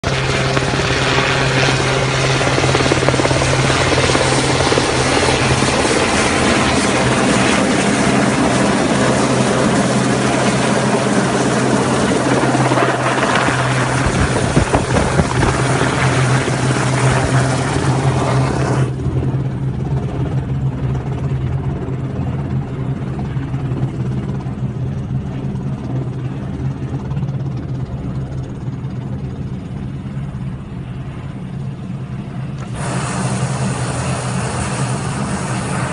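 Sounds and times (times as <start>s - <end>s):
helicopter rotor beat: 0.0s - 35.9s
dense rushing hiss: 32.7s - 35.9s.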